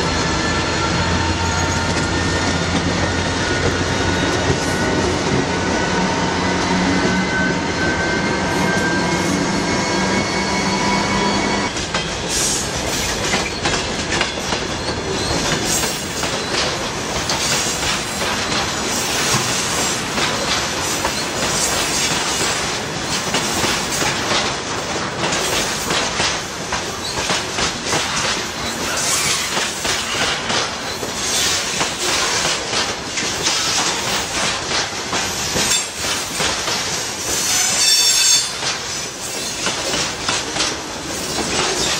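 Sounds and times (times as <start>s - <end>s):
freight cars rattling and squealing: 0.0s - 24.1s, 28.0s - 32.5s, 37.3s - 41.9s
train wheels clattering: 11.6s - 41.9s.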